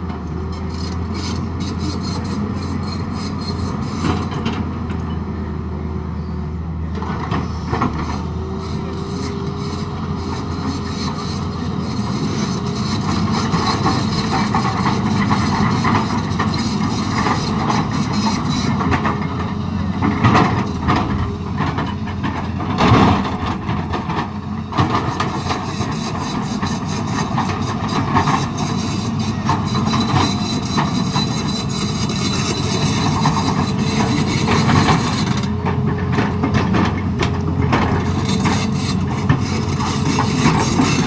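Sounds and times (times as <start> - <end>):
excavator diesel engine running: 0.0 - 41.0
rock and steel scraping: 25.0 - 35.6, 37.7 - 41.0.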